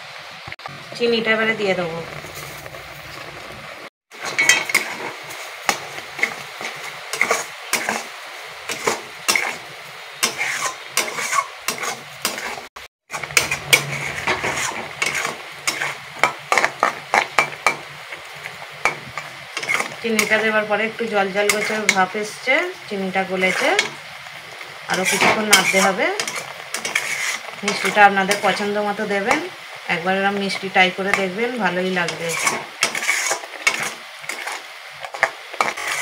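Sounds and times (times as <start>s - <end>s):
metal spatula scraping metal pan: 4.1s - 8.1s, 8.7s - 20.7s, 21.3s - 24.1s, 24.9s - 29.5s, 31.1s - 36.0s.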